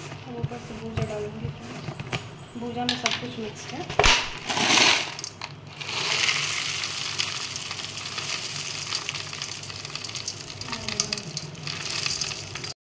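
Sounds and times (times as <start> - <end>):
snack pouring onto metal plate: 4.4 - 12.8.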